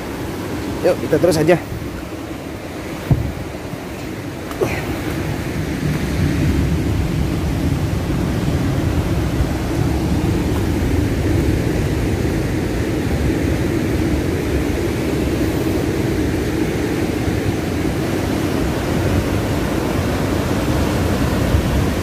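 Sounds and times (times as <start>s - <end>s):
heavy surf on shore: 0.0s - 22.0s
wind buffeting microphone: 0.0s - 22.0s.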